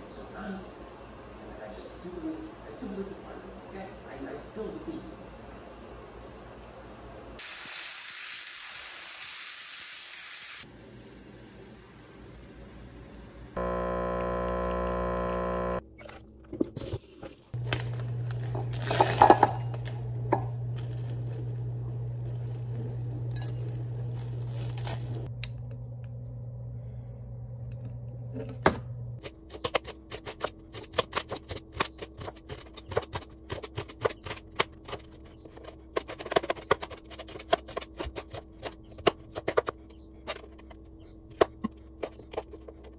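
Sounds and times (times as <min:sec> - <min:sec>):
low hum: 0:10.8 - 0:16.0, 0:17.6 - 0:29.2
dishes clattering: 0:18.5 - 0:19.7.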